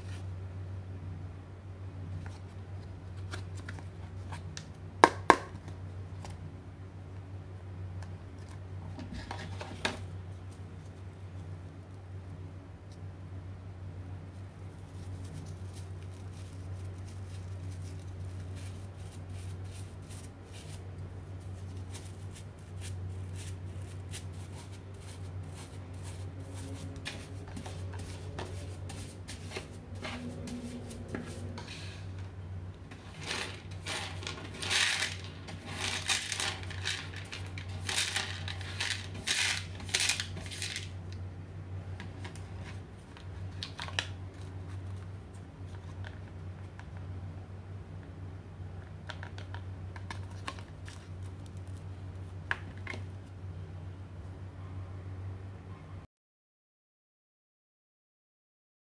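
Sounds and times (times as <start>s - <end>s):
brush sweeping: 14.3s - 32.2s, 32.9s - 40.8s
screws rattling into dustpan: 32.9s - 40.9s.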